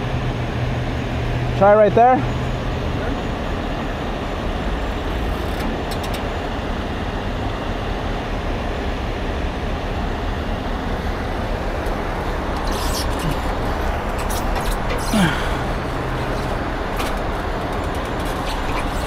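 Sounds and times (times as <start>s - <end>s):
diesel engine rumbling: 0.0s - 19.0s
freeway traffic noise: 0.0s - 19.0s
rigging hardware clicks and knock: 11.8s - 15.1s, 16.0s - 19.0s.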